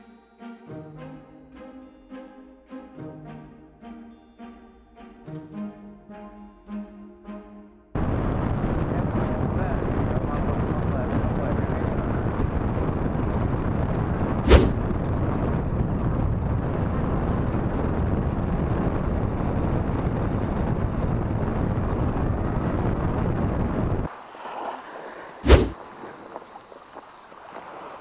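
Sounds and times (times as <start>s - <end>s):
wind buffeting microphone: 8.0s - 28.0s
sharp knock: 25.5s - 25.8s.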